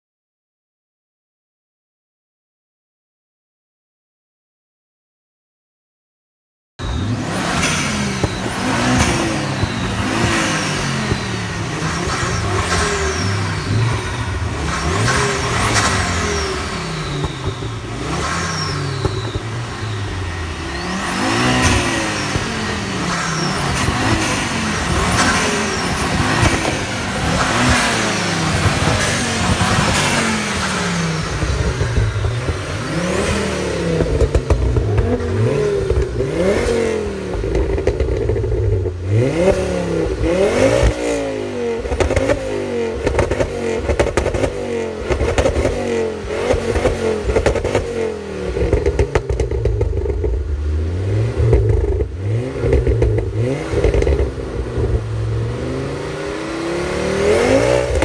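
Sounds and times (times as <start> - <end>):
car engines revving: 6.8 - 58.0
high falling whistles: 18.4 - 21.6.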